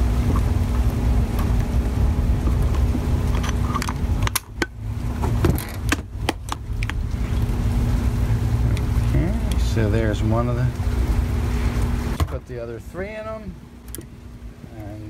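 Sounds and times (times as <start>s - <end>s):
faint steady hum: 0.0s - 15.0s
handling noise of fan motor: 0.0s - 15.0s
low rumble: 0.0s - 15.0s.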